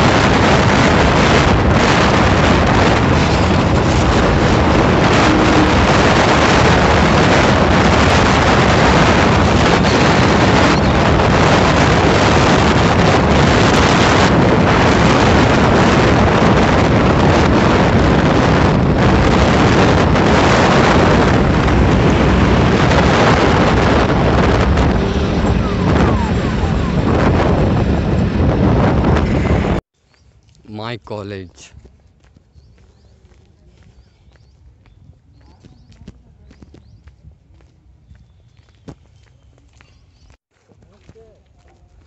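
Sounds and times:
road and engine noise: 0:00.0 - 0:29.8
wind rushing over microphone: 0:00.0 - 0:29.8, 0:30.7 - 0:42.0.

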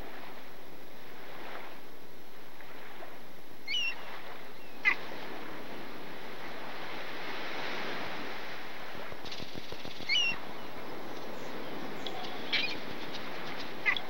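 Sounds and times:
surf washing: 0:00.0 - 0:14.0
gull calls: 0:03.7 - 0:04.0, 0:04.7 - 0:05.0, 0:10.0 - 0:10.5, 0:11.5 - 0:14.0.

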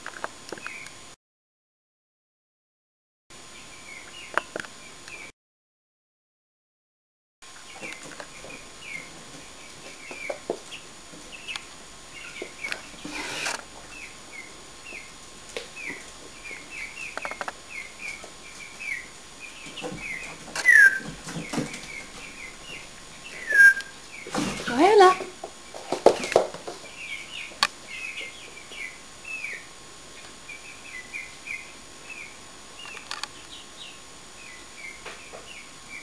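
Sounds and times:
hen chirping: 0:15.8 - 0:25.2, 0:26.8 - 0:29.7.

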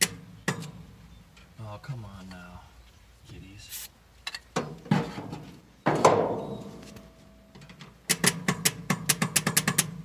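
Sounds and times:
sharp clunk: 0:04.6 - 0:07.0.

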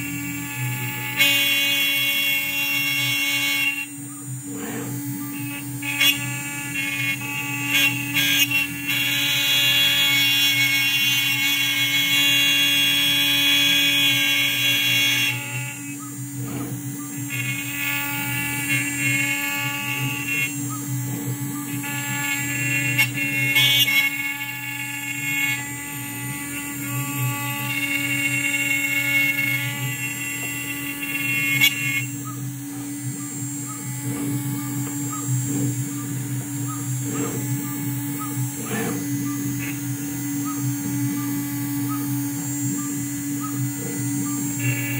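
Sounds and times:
stepper motors moving: 0:00.0 - 0:11.8, 0:14.5 - 0:44.9
router spindle milling wood: 0:00.0 - 0:44.9
high whine: 0:15.3 - 0:44.9.

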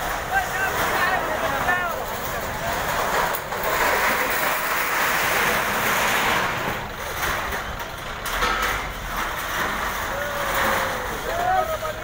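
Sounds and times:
crowd shouting: 0:10.1 - 0:12.0.

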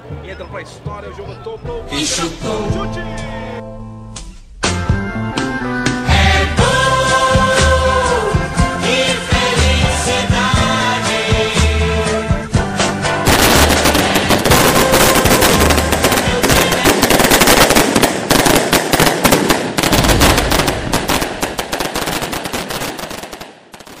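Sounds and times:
firecrackers crackling: 0:13.2 - 0:24.0.

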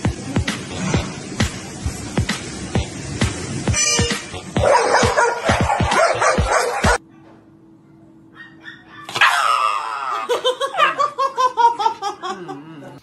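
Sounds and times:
background music with a beat: 0:00.0 - 0:07.0
dog screaming and yelping: 0:04.6 - 0:07.2, 0:08.3 - 0:11.1.

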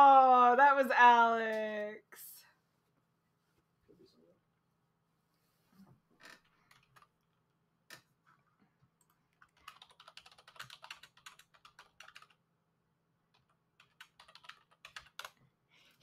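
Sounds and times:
typing on computer keyboard: 0:06.7 - 0:07.1, 0:09.0 - 0:12.4, 0:13.3 - 0:15.4.

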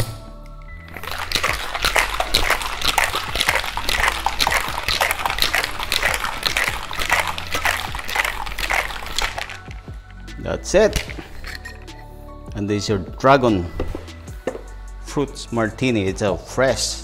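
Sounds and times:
cocktail shaker rattling with ice: 0:00.9 - 0:12.0.

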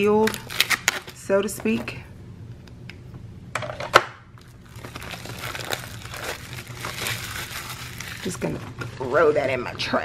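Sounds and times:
plastic shrink-wrap crinkling: 0:00.0 - 0:01.2, 0:04.4 - 0:08.6.

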